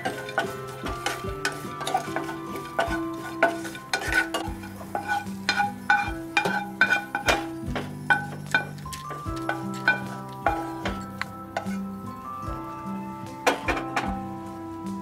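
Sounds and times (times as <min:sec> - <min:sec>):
wooden spatula scraping pan: 0:00.0 - 0:11.9
seeds frying in a pan: 0:00.0 - 0:14.9
background music: 0:00.0 - 0:15.0.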